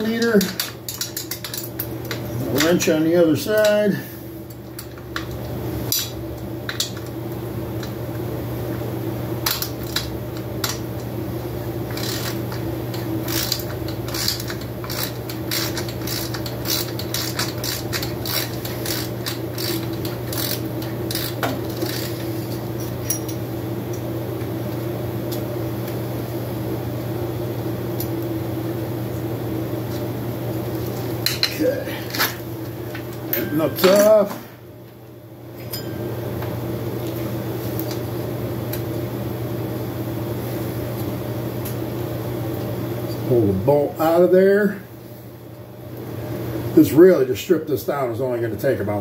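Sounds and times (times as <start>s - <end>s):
steady low hum: 0.0s - 49.0s.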